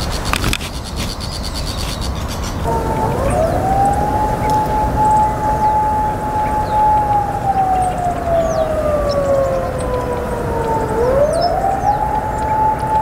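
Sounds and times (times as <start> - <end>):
high bird chirps: 0.0 - 13.0
siren wailing: 2.6 - 13.0.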